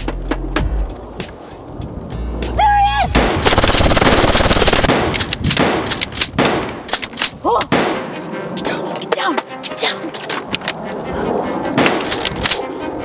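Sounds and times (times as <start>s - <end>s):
machine-gun fire: 3.2s - 6.7s.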